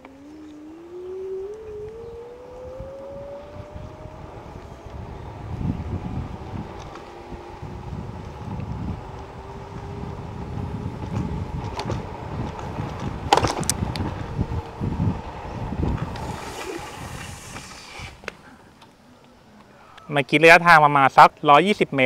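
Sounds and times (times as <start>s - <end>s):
wind buffeting microphone: 0.0s - 18.4s
scooter tyres hissing on concrete: 4.6s - 18.8s.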